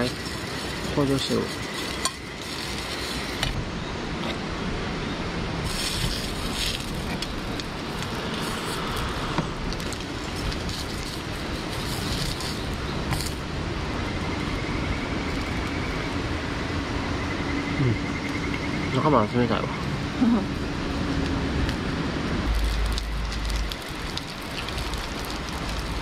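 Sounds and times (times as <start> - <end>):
sausages sizzling in a frying pan: 22.5 - 26.0.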